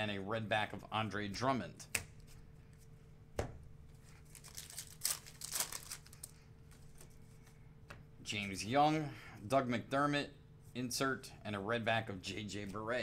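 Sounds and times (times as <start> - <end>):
card pack wrapper tearing: 4.3 - 6.3.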